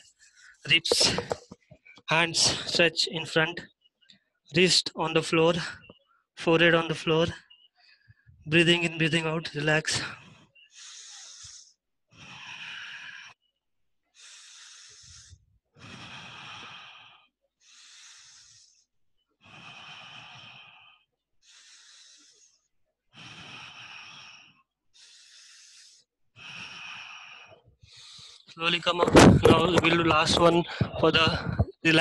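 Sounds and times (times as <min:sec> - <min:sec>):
man breathing slowly: 0:00.0 - 0:02.8, 0:10.0 - 0:28.6.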